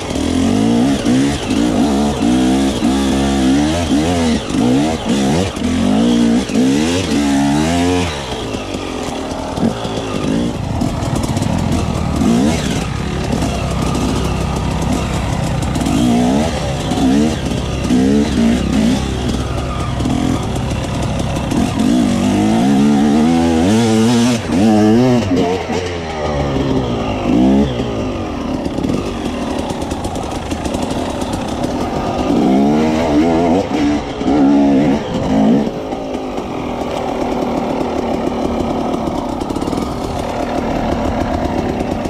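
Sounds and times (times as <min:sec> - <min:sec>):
dirt bike engine revving: 0:00.0 - 0:42.0
dirt bike engines idling: 0:00.0 - 0:42.0.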